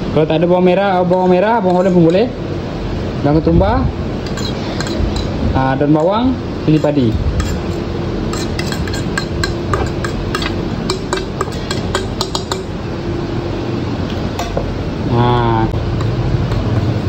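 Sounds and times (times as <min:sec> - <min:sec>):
steady hum: 0:00.0 - 0:17.0
fork clinking on metal bowl: 0:04.2 - 0:05.4, 0:06.0 - 0:12.8.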